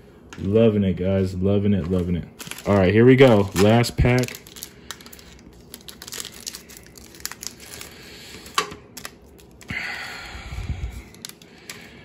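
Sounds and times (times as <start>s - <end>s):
foil wrapper crinkling: 1.8s - 9.8s, 10.8s - 12.0s.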